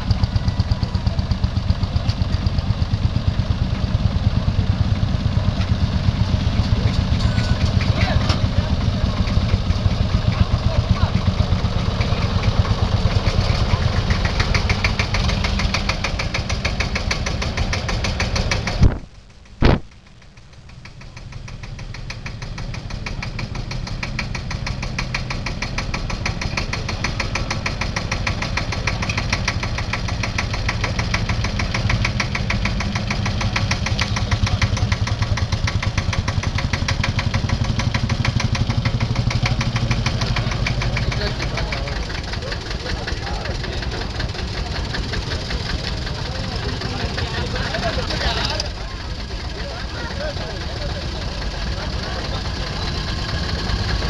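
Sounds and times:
tractor diesel engine knocking: 0.0s - 54.0s
sharp clicks: 14.0s - 41.5s.

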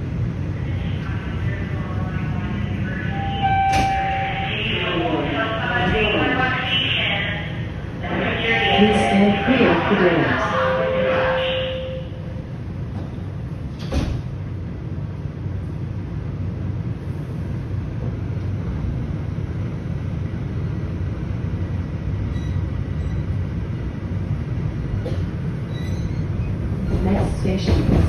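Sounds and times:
subway train rumble: 0.0s - 28.0s.

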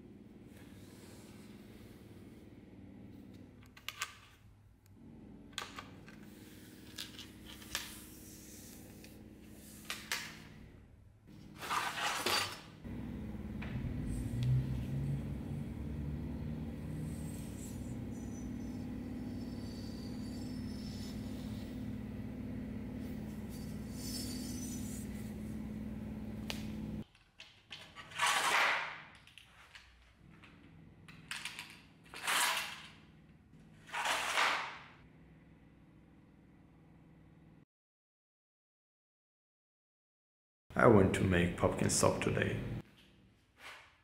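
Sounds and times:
low hum: 12.8s - 27.0s.

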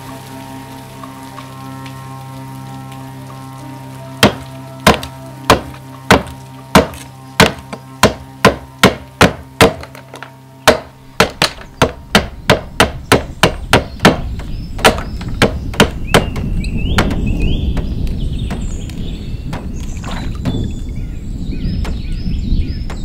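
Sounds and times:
axe striking wooden board: 4.2s - 16.4s.

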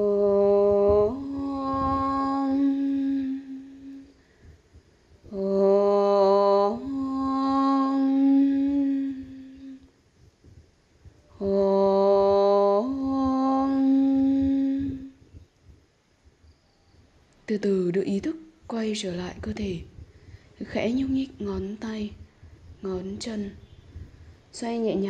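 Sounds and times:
person chanting: 0.0s - 4.2s, 5.3s - 9.9s, 11.3s - 15.2s.

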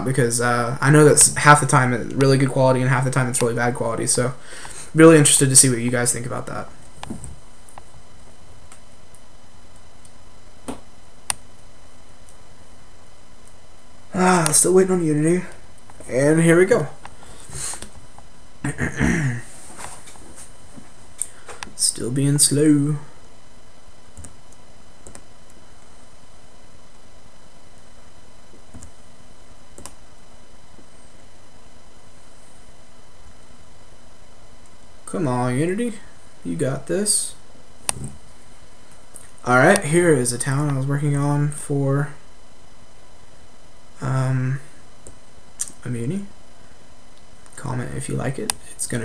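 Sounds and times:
microphone hiss: 0.0s - 49.0s
computer mouse clicks: 29.8s - 30.0s.

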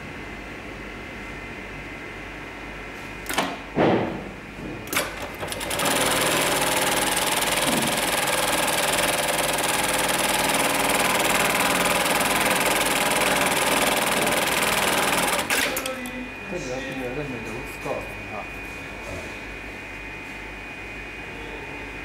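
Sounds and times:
sewing machine sewing: 4.9s - 15.9s.

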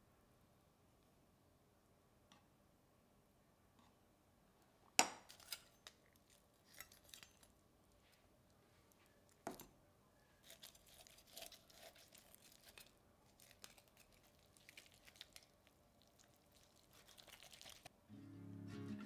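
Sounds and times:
chicken skin crackling and tearing: 10.4s - 17.9s
music: 18.1s - 19.0s.

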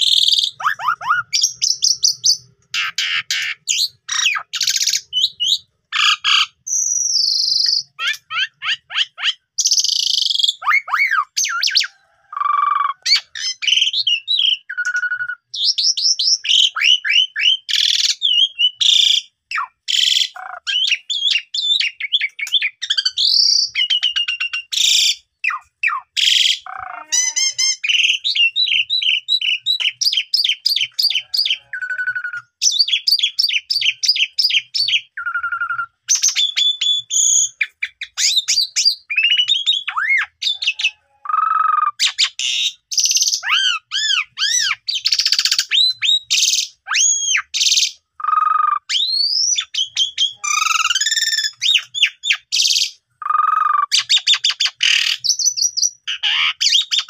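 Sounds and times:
starling singing varied song: 19.5s - 57.0s.

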